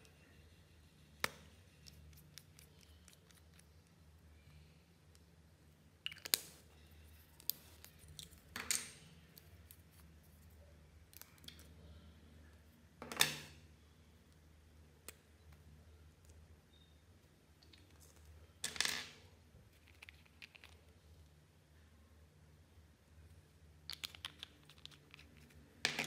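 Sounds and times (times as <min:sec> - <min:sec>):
faint low hum: 0:00.0 - 0:26.0
plastic caps clicking: 0:23.9 - 0:26.0.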